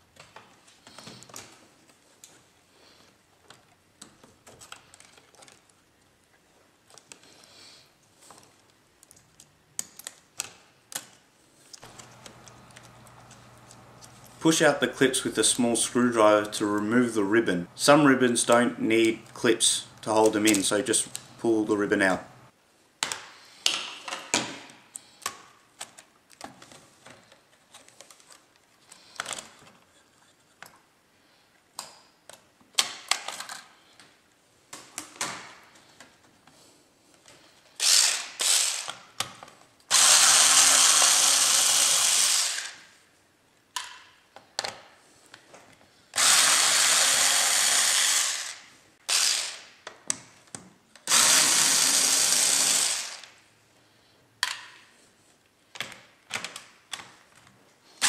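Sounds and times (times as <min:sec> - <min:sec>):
plastic parts clicking and tapping: 0:08.3 - 0:14.2, 0:23.0 - 0:29.9, 0:31.8 - 0:36.3, 0:43.7 - 0:45.8, 0:54.4 - 0:54.8, 0:55.7 - 0:57.6
electric screwdriver running: 0:37.8 - 0:39.0, 0:39.9 - 0:42.8, 0:46.2 - 0:49.7, 0:51.1 - 0:53.3.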